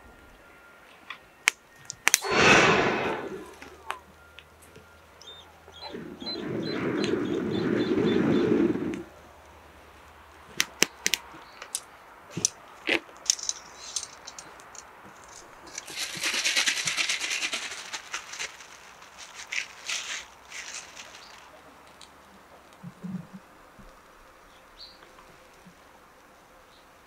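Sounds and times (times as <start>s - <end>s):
brief hiss: 2.2s - 3.8s
air whooshing through blowing pipe: 2.2s - 3.9s, 5.9s - 9.1s
metallic clicks of grill and tongs: 13.2s - 15.9s.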